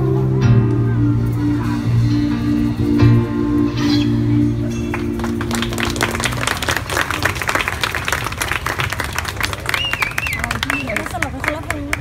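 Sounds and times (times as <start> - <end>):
audience applause: 4.9 - 12.0.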